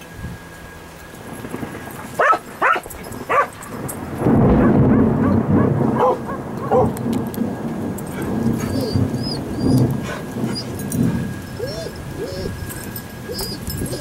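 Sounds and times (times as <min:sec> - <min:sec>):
thunder rumbling: 0:00.3 - 0:14.0
dog barking: 0:02.2 - 0:03.6, 0:04.5 - 0:07.0.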